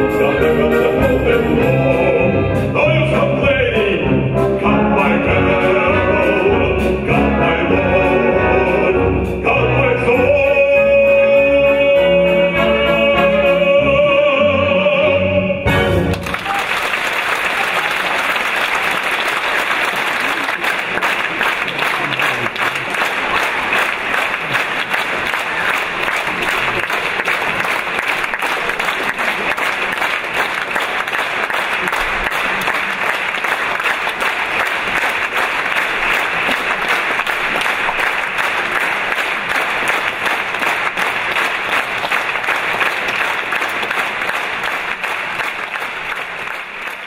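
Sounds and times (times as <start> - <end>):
audience applauding: 16.0 - 47.0.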